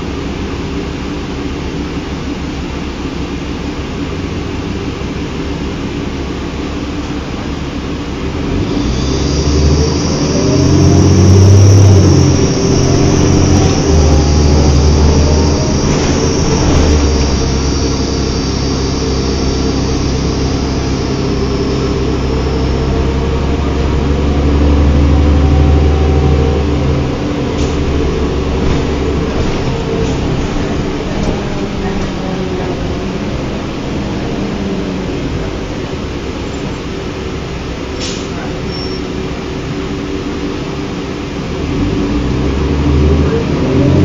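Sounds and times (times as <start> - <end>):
diesel bus engine: 0.0 - 44.0
high whine: 5.0 - 40.0.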